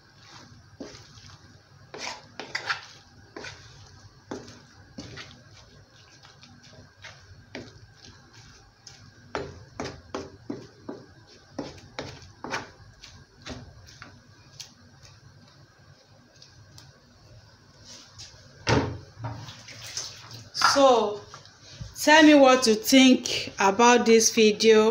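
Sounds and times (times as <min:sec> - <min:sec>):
wooden spatula knocking metal pot: 0:09.3 - 0:12.7.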